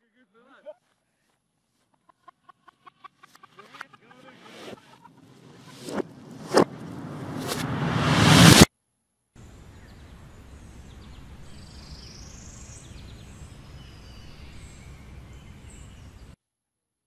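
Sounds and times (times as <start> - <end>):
low rumble: 5.3 - 8.7.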